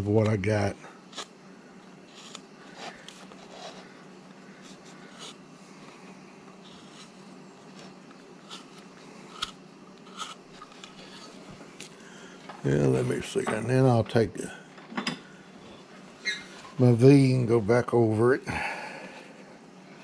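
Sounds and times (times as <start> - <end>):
faint steady hum: 0.0 - 20.0
knife scraping hard wood: 1.1 - 1.4, 2.0 - 5.4, 6.6 - 11.4.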